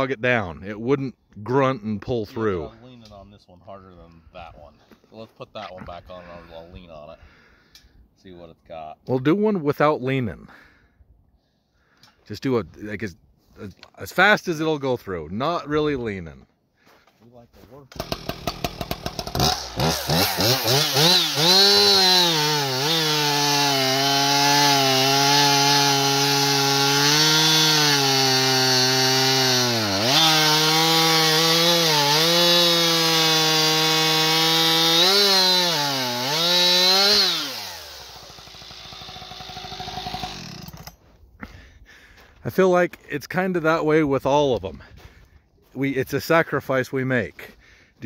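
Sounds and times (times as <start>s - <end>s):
chainsaw cutting log: 17.9s - 41.0s
chainsaw idling: 17.9s - 41.0s.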